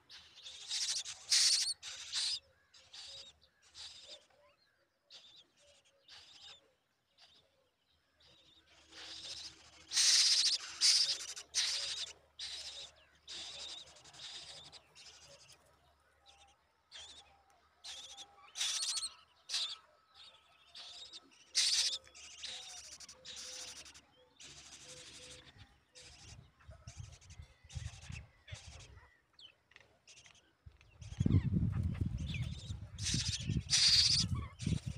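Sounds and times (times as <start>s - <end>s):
nestlings begging calls: 0.1s - 4.1s, 8.8s - 15.6s, 17.8s - 19.8s, 20.7s - 29.0s, 31.0s - 34.9s.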